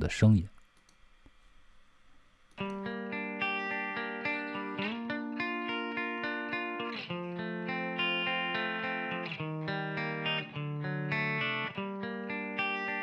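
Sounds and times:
electric guitar notes ringing: 2.6 - 13.0.

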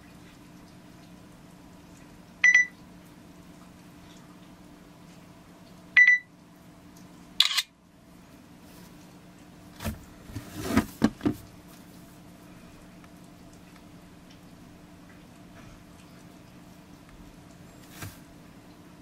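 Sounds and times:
faint steady hum: 0.0 - 19.0
short electronic beeps: 6.0 - 6.3
camera shutter sound: 7.4 - 7.7.

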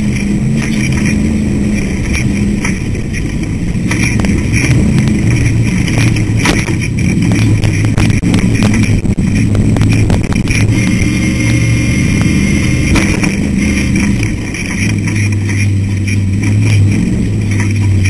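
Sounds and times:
chassis knocking on bumps: 0.0 - 18.0
race car engine running hard: 0.0 - 18.0.

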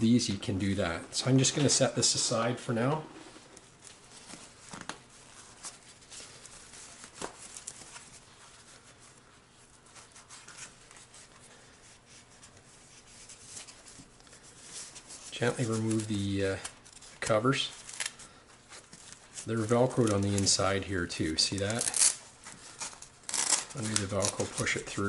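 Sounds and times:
cloth rustling: 3.1 - 20.6.

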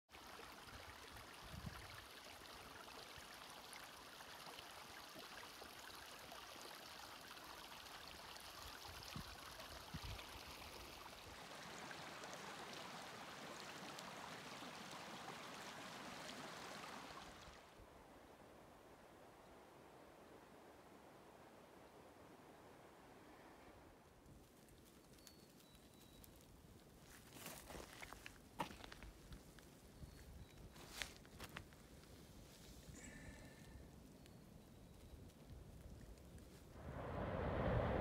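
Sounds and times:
creek running over rocks: 0.1 - 17.8
faint outdoor hiss: 0.1 - 38.0.

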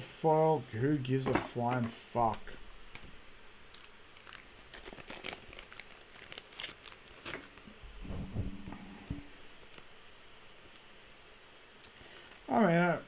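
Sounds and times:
foil wrapper crinkling: 3.7 - 7.7, 9.4 - 10.2
low hum: 7.7 - 9.8.

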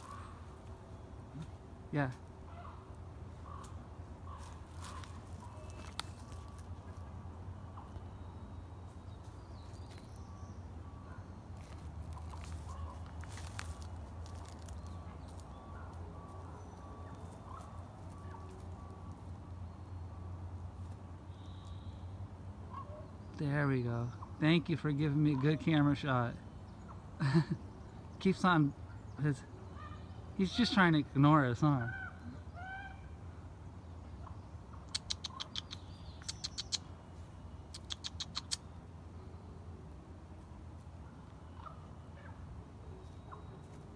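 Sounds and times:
twigs snapping as deer feeds: 4.4 - 6.9, 11.6 - 16.0.

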